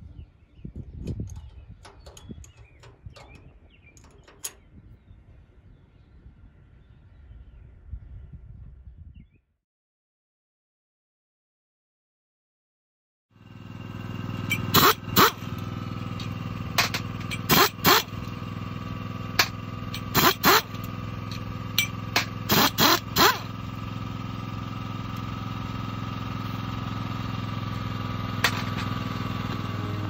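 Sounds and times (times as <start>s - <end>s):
engine drone: 0.0s - 6.0s, 13.4s - 30.0s
pneumatic wrench bursts: 14.3s - 18.5s, 19.3s - 23.8s.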